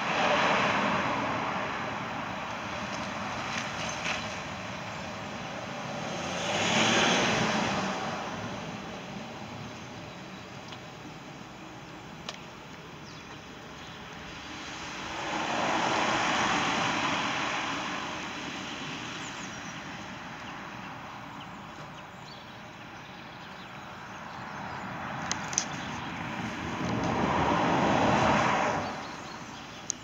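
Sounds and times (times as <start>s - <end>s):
vehicle passing on wet road: 0.0s - 9.6s, 14.3s - 20.4s, 26.0s - 29.2s
vehicle approaching: 0.0s - 30.0s.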